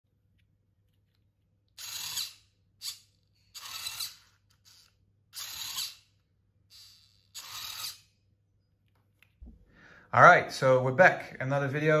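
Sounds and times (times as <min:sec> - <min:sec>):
servo motor whirring: 0:01.8 - 0:06.1, 0:06.7 - 0:08.1.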